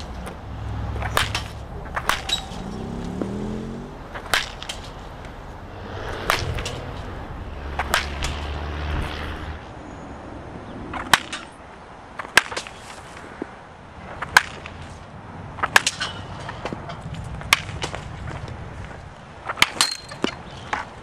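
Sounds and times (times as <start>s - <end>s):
baseball bat hitting balls: 0.0s - 9.7s, 10.9s - 11.6s, 12.2s - 13.1s, 14.2s - 15.0s, 15.6s - 18.6s, 19.4s - 21.0s.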